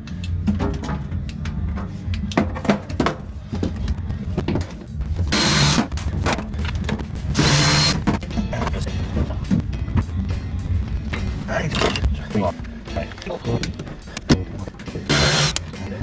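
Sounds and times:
power tool bursts: 15.1s - 15.6s.

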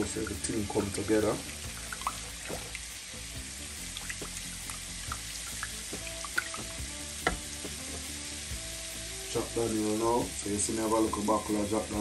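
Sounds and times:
oil deep-frying with pops: 0.0s - 9.0s.

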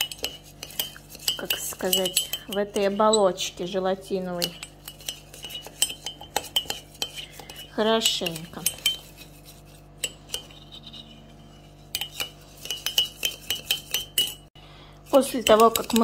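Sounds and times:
teaspoon clinking in ceramic mug: 4.4s - 9.2s, 12.0s - 14.4s.

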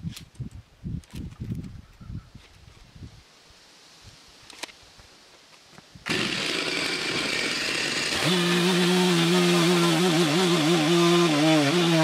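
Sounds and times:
chainsaw revving: 6.0s - 12.0s.

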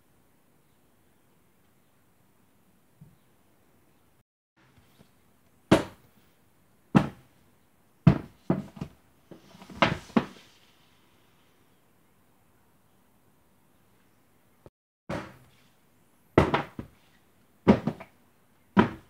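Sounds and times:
books knocking on tabletop: 5.7s - 6.0s, 7.0s - 7.2s, 8.1s - 10.4s, 16.4s - 16.9s, 17.7s - 18.1s, 18.8s - 19.0s.

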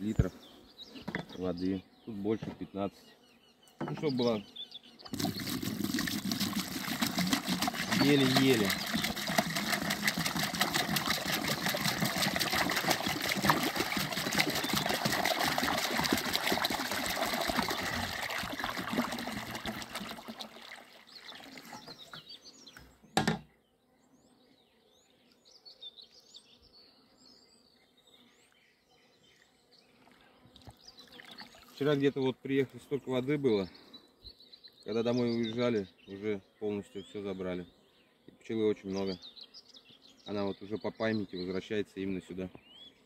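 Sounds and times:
water pouring into plastic basin: 5.1s - 22.2s
thump: 23.2s - 23.5s.

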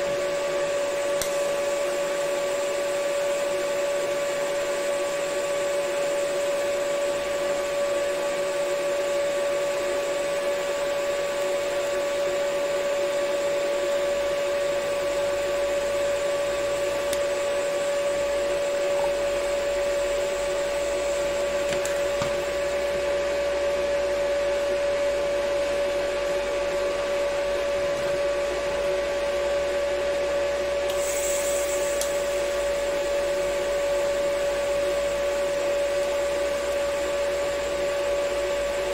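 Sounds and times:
welding arc whine and hiss: 0.0s - 38.9s
sharp hiss: 30.9s - 32.3s.

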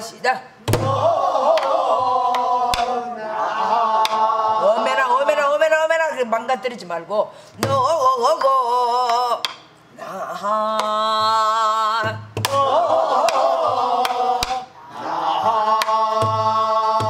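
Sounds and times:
wordless folk singing with vibrato: 0.6s - 6.0s, 7.4s - 17.0s
barrel drum struck with stick: 0.7s - 1.7s.

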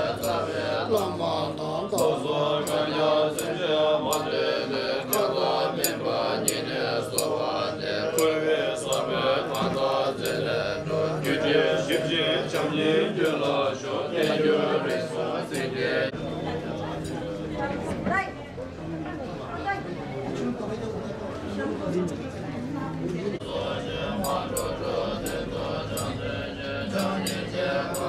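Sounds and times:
sharp rhythmic strike: 0.0s - 16.2s, 23.4s - 28.0s
monks chanting in unison: 0.0s - 18.0s, 23.4s - 28.0s.

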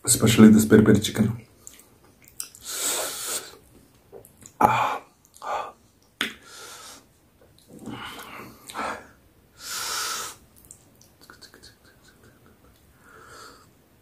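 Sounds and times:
mouth noises while eating: 1.6s - 13.8s
person breathing and sniffing: 2.6s - 3.6s, 7.8s - 10.4s.

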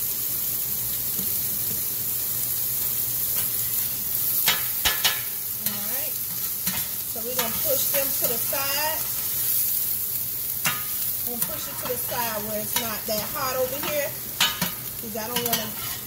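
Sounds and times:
vegetables sizzling in oil: 0.0s - 16.0s
spatula scraping and knocking pan: 4.4s - 9.1s, 10.6s - 16.0s.

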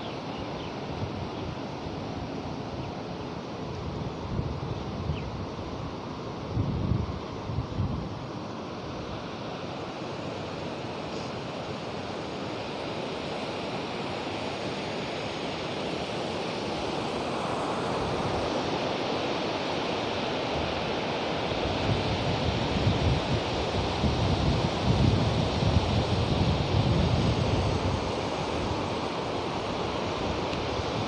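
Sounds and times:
river rushing over boulders: 5.6s - 31.0s
wind buffeting microphone: 21.7s - 28.9s.

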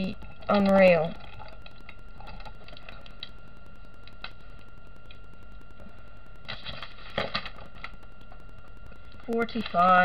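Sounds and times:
low room hum: 0.0s - 10.0s
paper sheet rustling: 6.5s - 7.9s.

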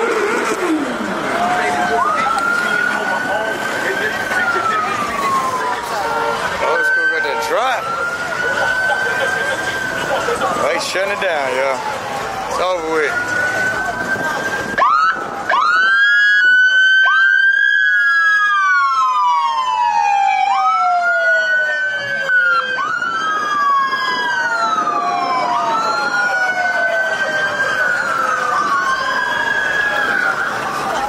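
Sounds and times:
police sirens wailing: 0.0s - 31.0s.

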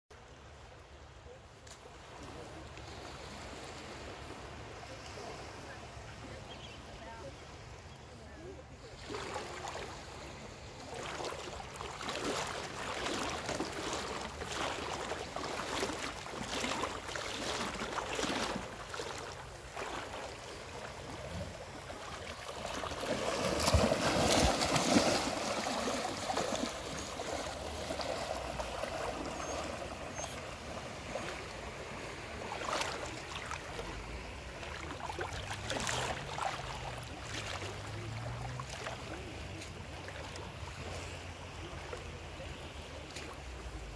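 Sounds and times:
water splashing from swimming dogs: 8.9s - 43.9s.

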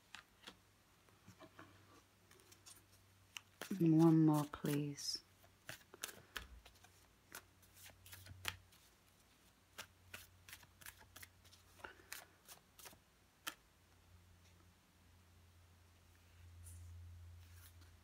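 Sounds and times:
cards being shuffled: 0.0s - 0.6s, 2.2s - 13.6s, 17.4s - 18.0s.

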